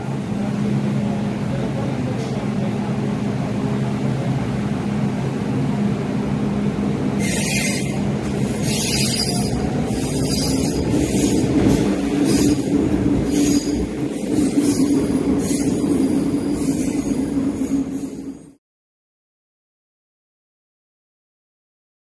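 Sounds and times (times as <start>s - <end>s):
train humming: 0.0s - 18.6s
train motor whine: 7.2s - 17.0s.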